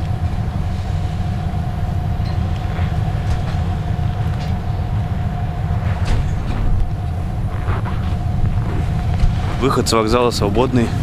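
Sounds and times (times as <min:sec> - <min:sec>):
train low rumble with hum: 0:00.0 - 0:11.0.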